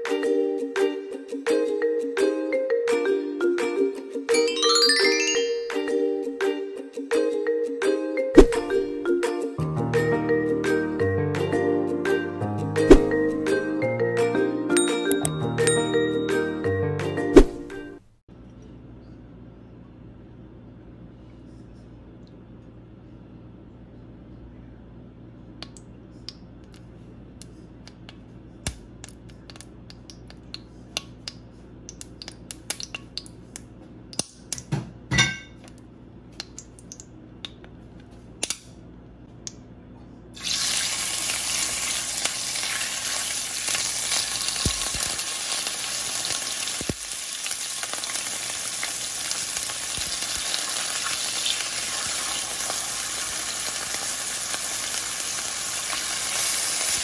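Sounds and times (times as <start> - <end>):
meat sizzling in hot oil: 40.4 - 57.0.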